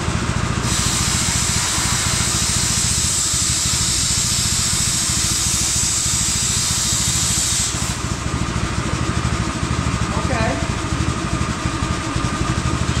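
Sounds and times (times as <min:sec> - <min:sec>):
low rhythmic engine-like hum: 0:00.0 - 0:13.0
plasma cutter hissing: 0:00.6 - 0:08.2.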